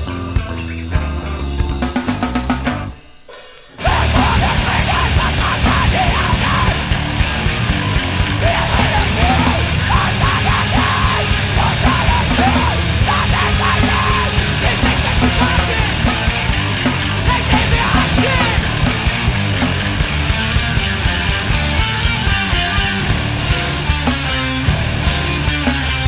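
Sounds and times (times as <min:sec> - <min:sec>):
distorted guitars: 0:00.0 - 0:26.0
pounding drums: 0:01.7 - 0:26.0
screamed vocals: 0:03.8 - 0:19.1.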